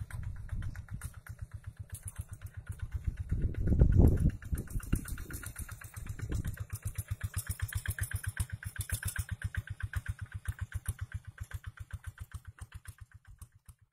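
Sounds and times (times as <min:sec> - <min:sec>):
diesel tractor engine chugging: 0:00.0 - 0:13.9.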